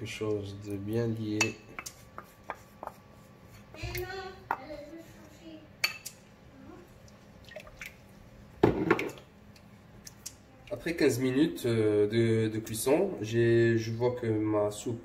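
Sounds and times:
wooden spoon stirring in pot: 1.2 - 5.5.

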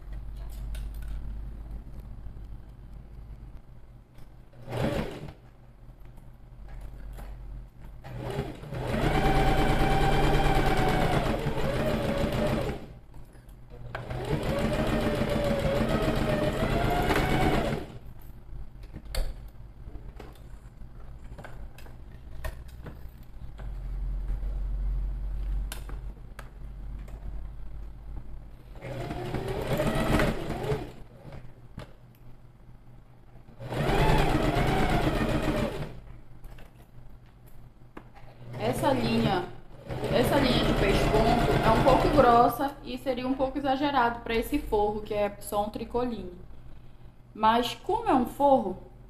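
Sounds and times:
sewing machine stitching: 4.6 - 5.4, 8.0 - 13.0, 13.8 - 18.0, 28.8 - 31.4, 33.6 - 36.0, 38.4 - 42.5.

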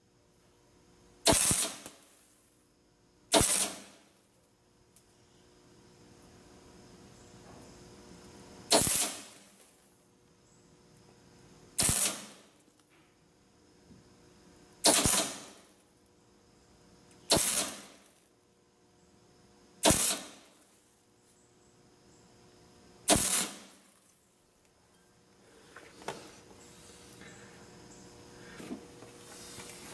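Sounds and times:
welder arc crackling: 1.3 - 2.3, 8.7 - 9.9, 11.8 - 12.8, 14.8 - 15.8, 17.1 - 18.2, 19.8 - 20.8, 23.1 - 24.1.

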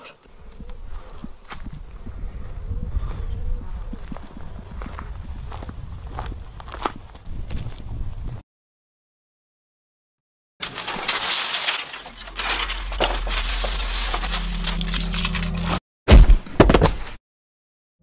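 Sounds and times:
gritty crunching and crackling: 10.6 - 15.8
very loud crash: 10.6 - 16.4
low steady drone: 12.4 - 15.8.

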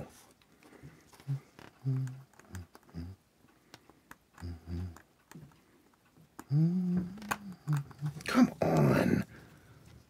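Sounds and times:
man humming with effort: 1.2 - 3.2, 4.4 - 5.0, 6.5 - 9.3
man mumbling: 6.5 - 9.4.

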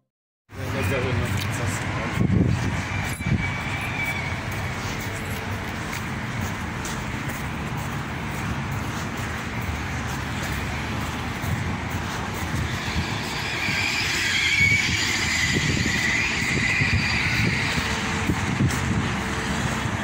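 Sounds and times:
car passing: 0.6 - 20.0
wind rumble on microphone: 0.6 - 20.0.

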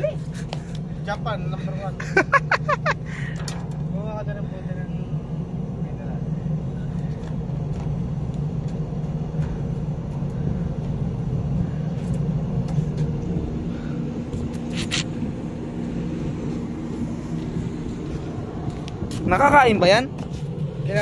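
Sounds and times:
ship machinery rumbling: 0.0 - 21.0.

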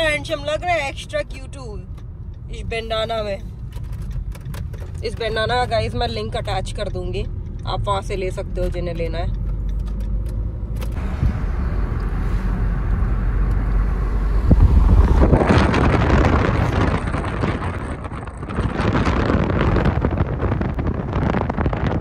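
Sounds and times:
road and engine rumble: 0.0 - 22.0
wind rushing over microphone: 10.9 - 22.0.

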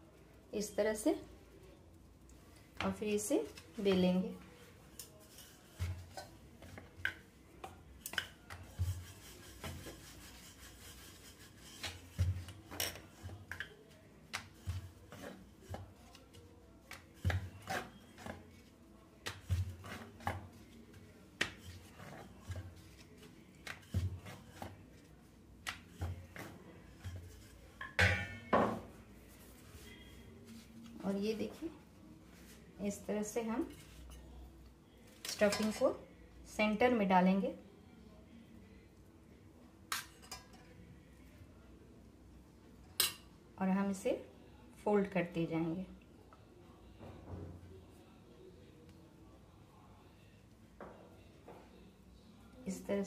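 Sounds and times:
rolling pin rubbing on dough: 5.1 - 6.7, 8.3 - 27.7.

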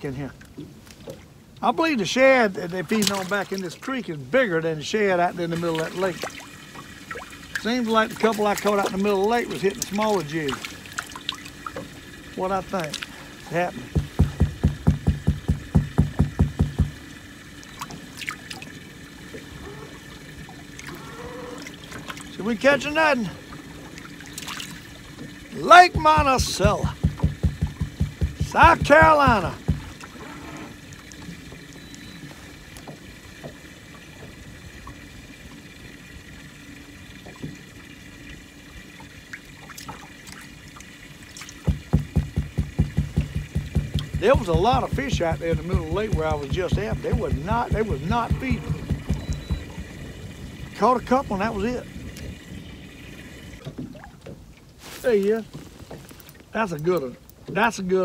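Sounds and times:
faint steady hum: 0.0 - 58.0
water trickling and lapping: 0.0 - 58.0
quick hollow knocks: 13.9 - 17.0, 25.9 - 30.0, 41.6 - 49.8.

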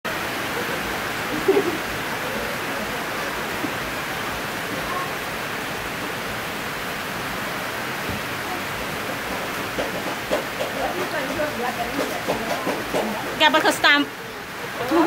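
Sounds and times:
steady rushing noise: 0.1 - 15.0.

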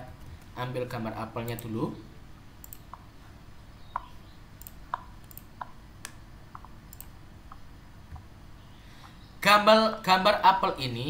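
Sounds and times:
computer mouse clicking: 2.6 - 3.1, 3.9 - 8.3.

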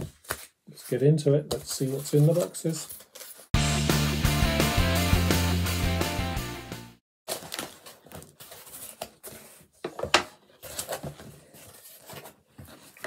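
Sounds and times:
intro music: 3.6 - 7.0.

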